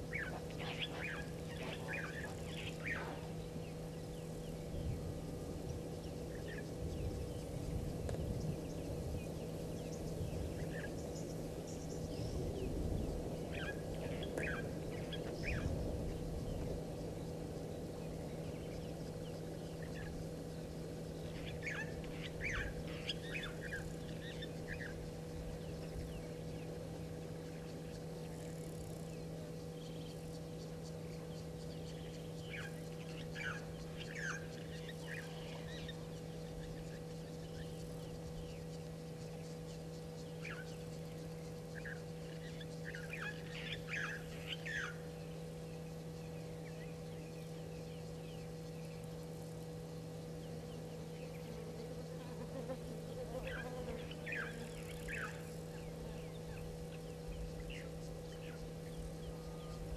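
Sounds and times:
birds chirping: 0:00.0 - 0:59.9
outdoor background noise: 0:00.0 - 0:59.9
steady low hum: 0:00.0 - 0:59.9.

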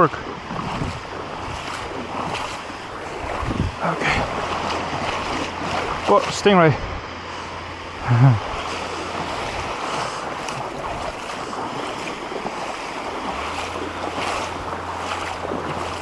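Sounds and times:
wind on microphone: 0:00.0 - 0:06.1, 0:06.7 - 0:16.0
small waves washing: 0:00.0 - 0:16.0
water sloshing around wading legs: 0:00.0 - 0:16.0.

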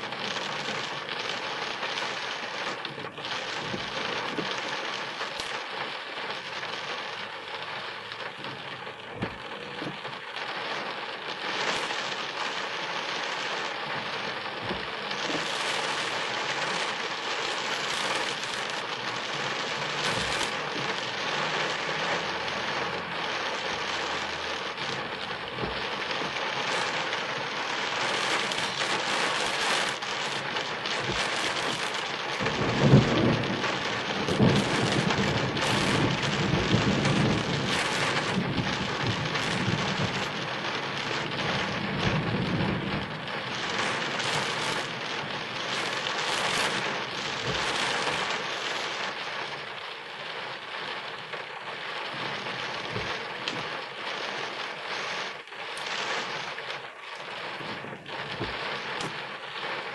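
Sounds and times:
steady rain hiss: 0:00.0 - 0:59.9
thunder rumbling: 0:13.5 - 0:49.1.

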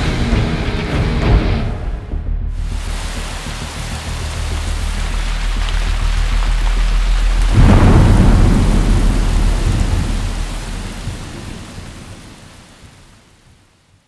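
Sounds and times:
heavy rain falling: 0:02.5 - 0:14.0
rolling thunder: 0:05.8 - 0:13.5.

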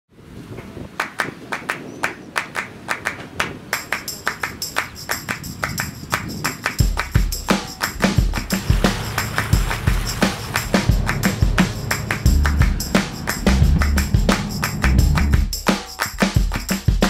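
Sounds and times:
background music with percussive beat: 0:03.8 - 0:17.0
heavy bass drum beats: 0:06.8 - 0:17.0.

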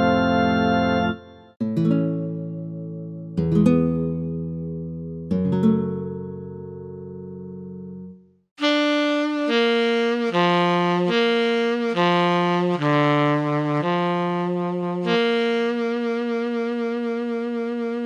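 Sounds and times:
keyboard saxophone tone: 0:00.0 - 0:01.5, 0:08.6 - 0:18.0.

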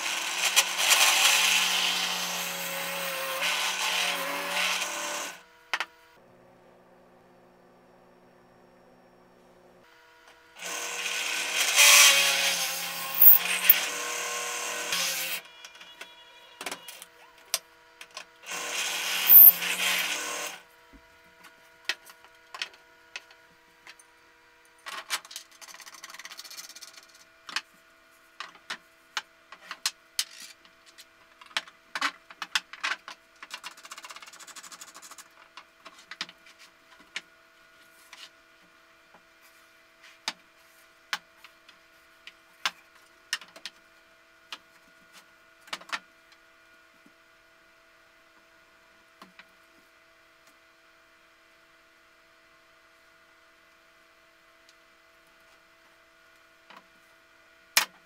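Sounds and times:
drill press boring through wood: 0:18.5 - 0:20.6.

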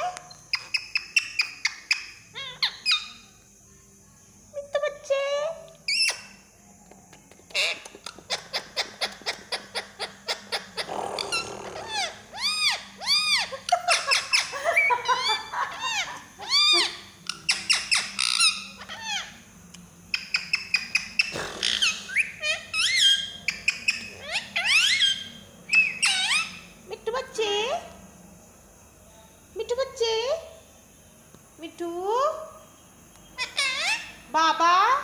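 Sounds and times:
parakeet chirps whistles and squawks: 0:05.9 - 0:06.3, 0:07.6 - 0:14.5, 0:15.8 - 0:19.4, 0:20.1 - 0:26.7, 0:33.4 - 0:34.2.

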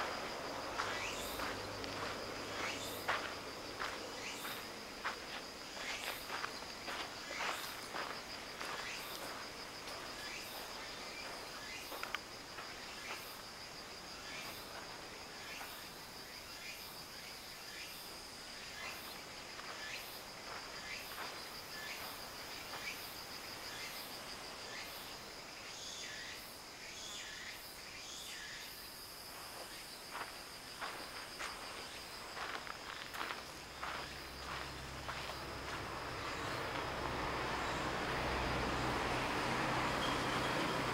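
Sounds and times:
insects trilling: 0:00.0 - 0:40.9.

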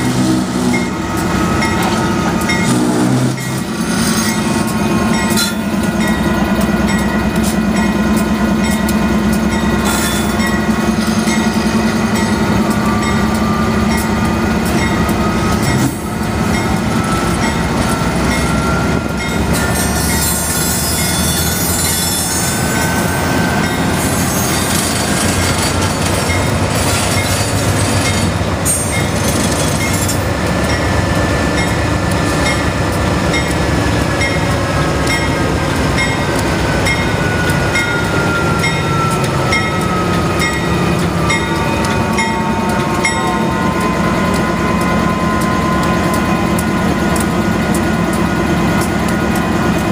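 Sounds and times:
diesel locomotive engine rumble: 0:00.0 - 0:49.9
regular ticks: 0:43.8 - 0:49.5.

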